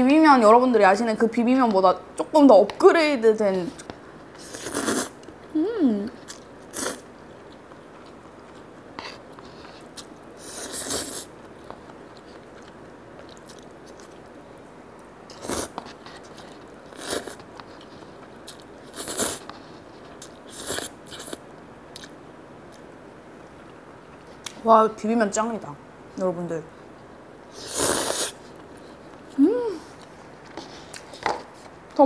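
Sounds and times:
noodles being slurped: 0:04.4 - 0:05.2, 0:27.6 - 0:28.4
chewing: 0:11.6 - 0:14.4.

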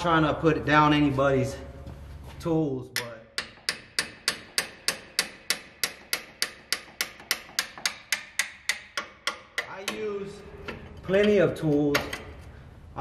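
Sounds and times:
hammer striking steel wrench: 0:02.9 - 0:12.3.

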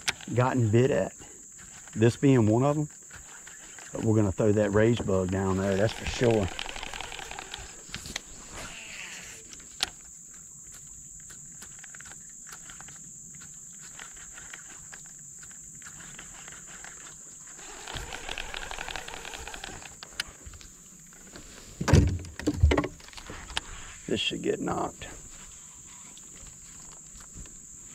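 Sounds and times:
high-pitched insect drone: 0:00.0 - 0:20.3
rustling and ticking: 0:00.0 - 0:23.8.

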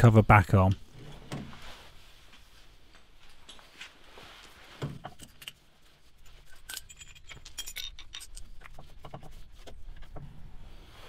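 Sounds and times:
metallic clinks of tools: 0:06.5 - 0:08.5.

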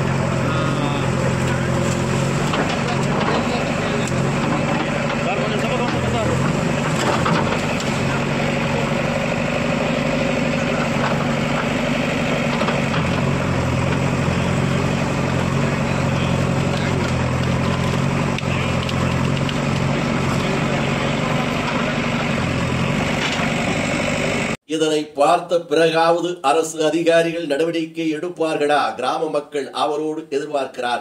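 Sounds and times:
dense background noise: 0:00.0 - 0:24.6
engine idling: 0:00.0 - 0:24.6.

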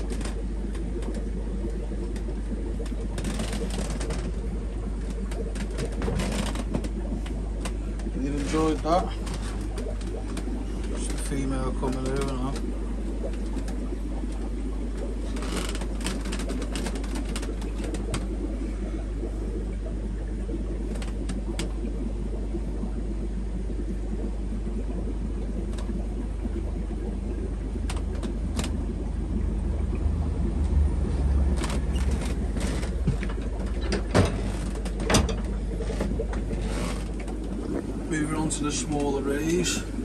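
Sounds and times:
aquarium equipment humming: 0:00.0 - 0:40.0
scattered clicks: 0:09.3 - 0:13.8.

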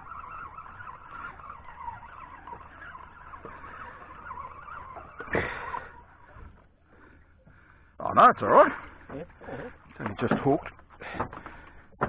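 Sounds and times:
fishing reel whining: 0:00.0 - 0:07.5.

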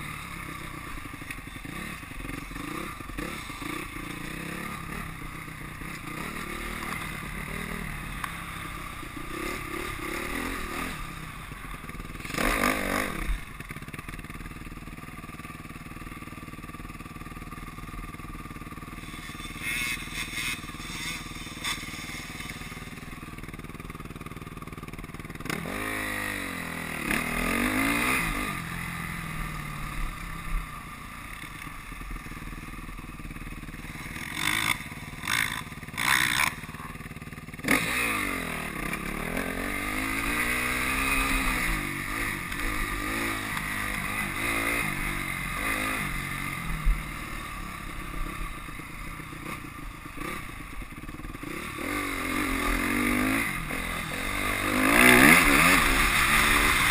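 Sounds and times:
dirt bike engines revving: 0:00.0 - 0:15.0, 0:15.7 - 0:56.9.

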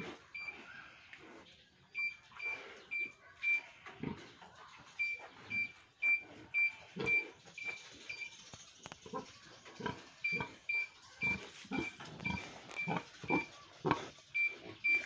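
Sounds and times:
pig grunting: 0:00.0 - 0:01.0, 0:03.8 - 0:04.4, 0:05.0 - 0:07.4, 0:09.0 - 0:15.0.

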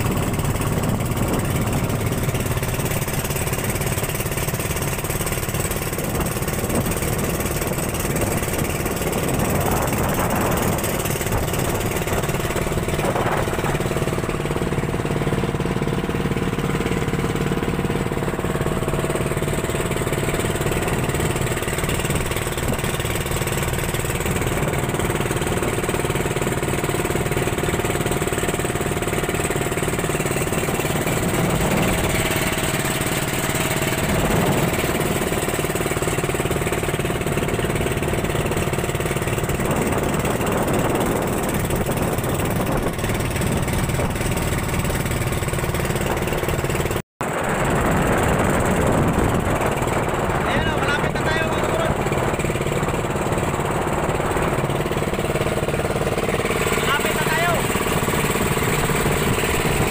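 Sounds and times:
boat engine running: 0:00.0 - 0:59.9
rushing water and wind: 0:00.0 - 0:59.9.

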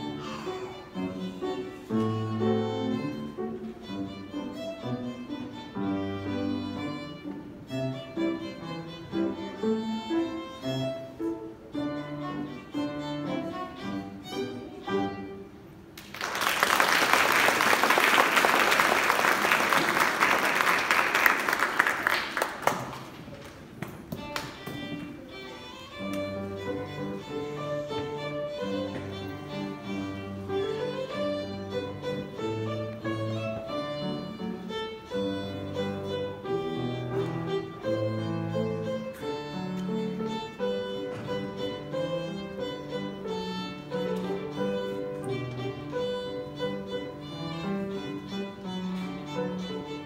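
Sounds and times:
piano accompaniment: 0:00.0 - 0:15.9, 0:24.2 - 0:50.0
violin playing: 0:00.0 - 0:15.9, 0:24.1 - 0:50.0
audience applause: 0:16.0 - 0:23.4.

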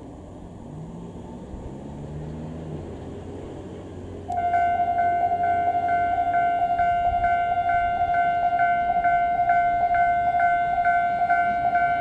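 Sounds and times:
low street rumble: 0:00.0 - 0:12.0
level-crossing warning bell ringing: 0:04.3 - 0:12.0.

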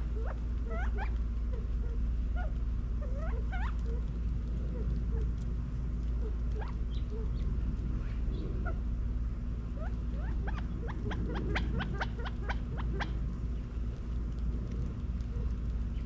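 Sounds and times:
quail chirping: 0:00.0 - 0:05.3, 0:06.2 - 0:08.8, 0:09.7 - 0:13.2
steady low rumble: 0:00.0 - 0:16.0.

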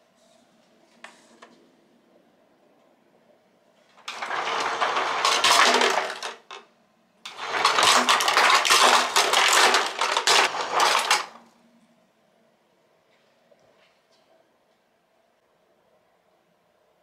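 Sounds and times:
ice cubes clattering into cup: 0:04.1 - 0:06.6, 0:07.3 - 0:11.4.

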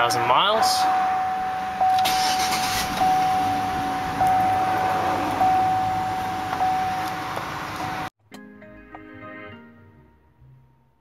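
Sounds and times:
car warning chime ding: 0:00.4 - 0:08.1.

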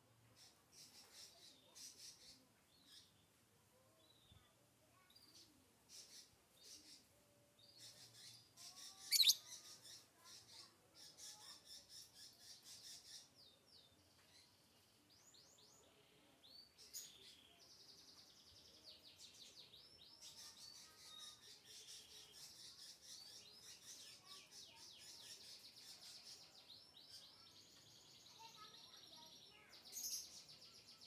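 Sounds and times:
lovebird chattering: 0:08.8 - 0:09.7.

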